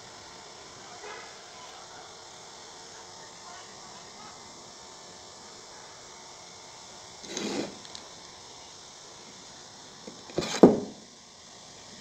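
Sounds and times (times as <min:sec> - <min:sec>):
bamboo tube scraping on floor: 0:07.2 - 0:07.9, 0:10.3 - 0:11.0.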